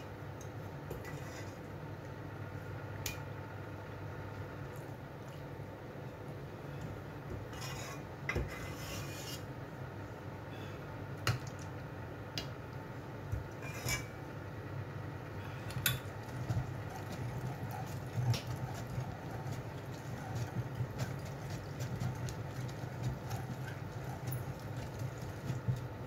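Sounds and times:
food mill blade grinding: 0:16.3 - 0:25.8.

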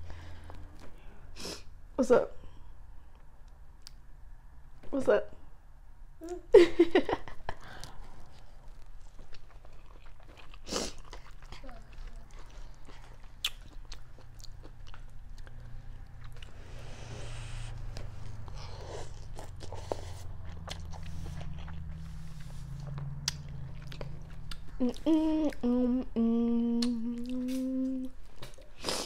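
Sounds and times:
mouth smacks and chewing: 0:07.8 - 0:16.6, 0:17.6 - 0:25.6, 0:26.7 - 0:29.0
woman humming: 0:24.7 - 0:28.2.

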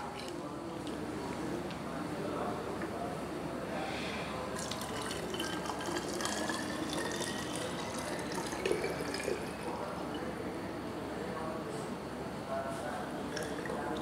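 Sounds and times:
liquid pouring into a bottle: 0:04.5 - 0:10.3, 0:13.2 - 0:14.0
liquid splashing: 0:04.6 - 0:09.9, 0:13.3 - 0:14.0.

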